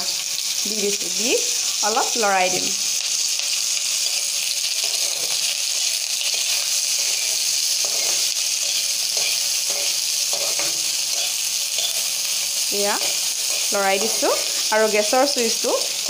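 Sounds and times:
onions sizzling in oil: 0.0s - 16.0s
metal spatula scraping: 2.6s - 15.0s.

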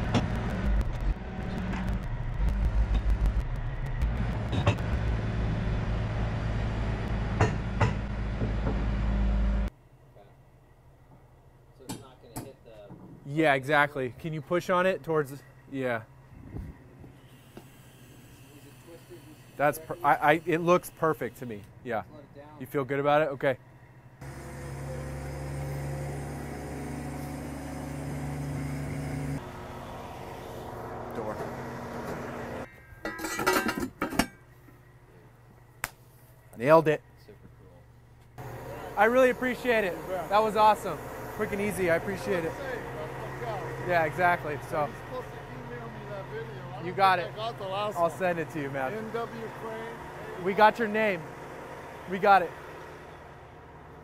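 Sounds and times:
truck engine running: 0.0s - 9.7s, 23.4s - 32.7s, 34.3s - 54.0s.

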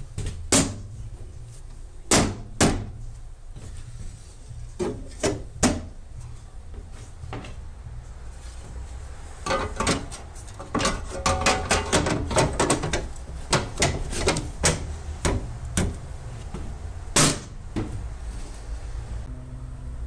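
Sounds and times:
sheet metal cover clicking and knocking: 9.4s - 16.0s.

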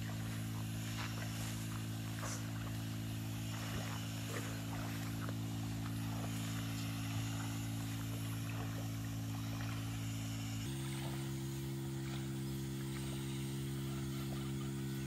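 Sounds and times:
small engine humming: 0.0s - 15.0s.

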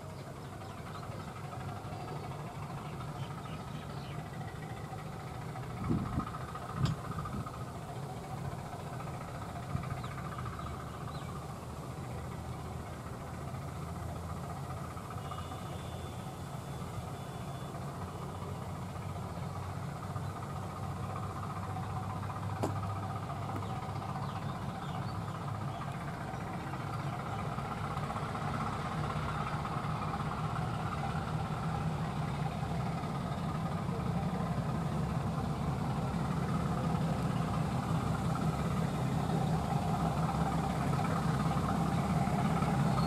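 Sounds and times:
diesel locomotive engine running: 0.0s - 43.0s.

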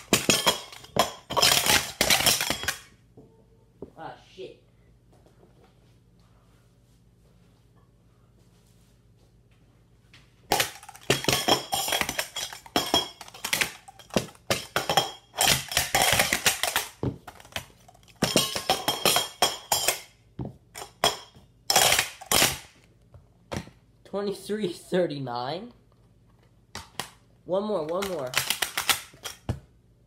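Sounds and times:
metal cups clacking: 0.0s - 2.8s, 10.5s - 20.1s, 20.8s - 22.6s.

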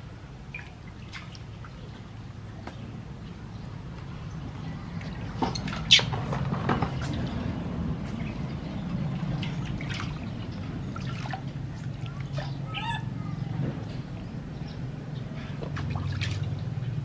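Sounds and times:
water splashing in steel basin: 8.3s - 12.6s, 15.6s - 16.8s.

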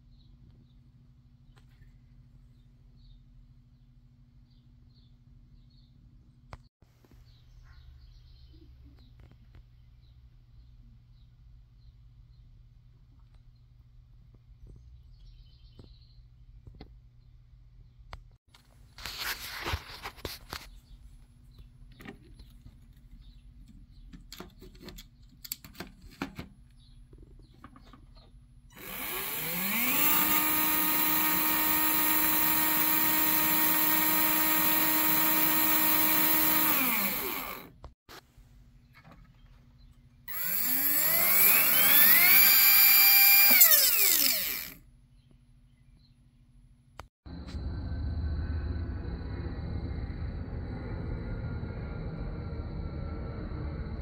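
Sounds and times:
small electric motor whine: 28.7s - 37.8s, 40.3s - 44.8s
high-pitched motor whine: 28.8s - 37.7s, 40.3s - 44.8s.

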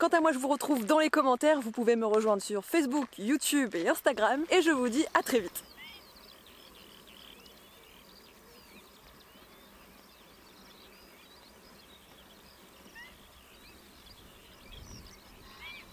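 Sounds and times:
birds chirping: 0.0s - 15.9s
outdoor hiss: 0.0s - 15.9s.

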